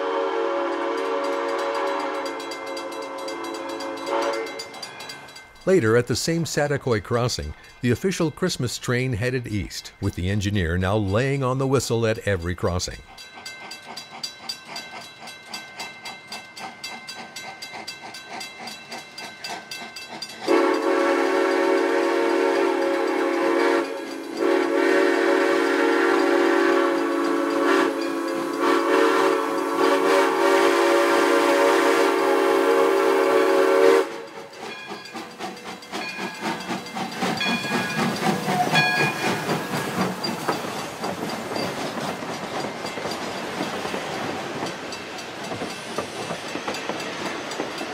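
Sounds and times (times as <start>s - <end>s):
locomotive whistle blast: 0.0s - 4.7s, 20.5s - 34.4s
train wheels clacking over rails: 0.5s - 8.6s, 13.2s - 47.9s
crossing bell ringing: 0.6s - 30.2s, 34.2s - 47.9s.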